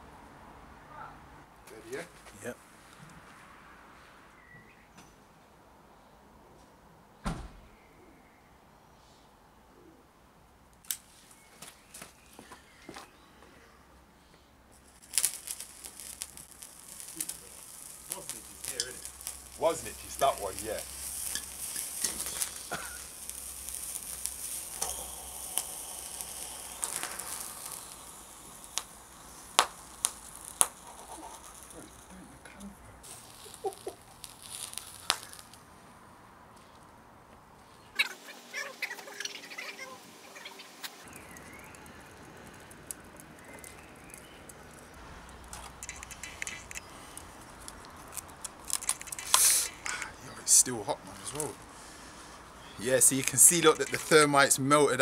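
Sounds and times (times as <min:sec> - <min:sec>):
sharp pops: 0:14.7 - 0:35.8, 0:40.8 - 0:54.8
thermite hissing sizzle: 0:14.7 - 0:36.8, 0:38.0 - 0:55.0.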